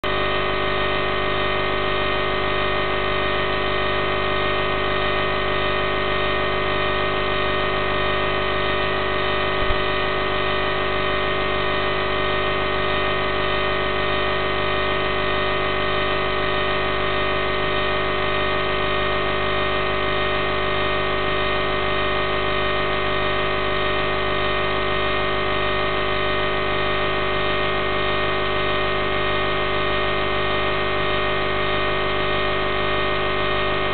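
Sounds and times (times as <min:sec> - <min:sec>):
steady electronic buzz: 0:08.7 - 0:10.8.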